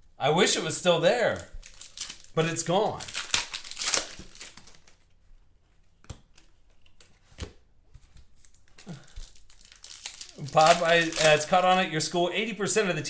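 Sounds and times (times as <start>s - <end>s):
handling cards and foil wrapper: 1.3s - 5.1s, 8.4s - 12.2s.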